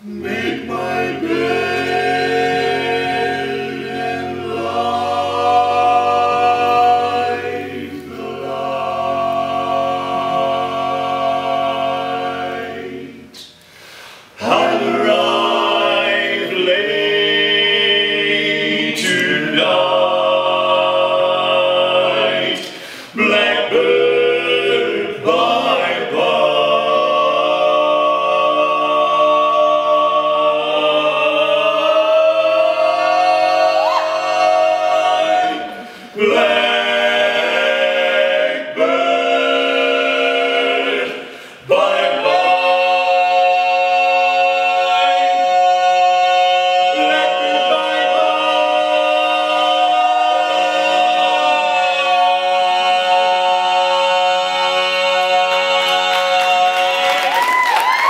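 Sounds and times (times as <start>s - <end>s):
male voices singing in harmony: 0.0s - 13.5s, 14.3s - 58.0s.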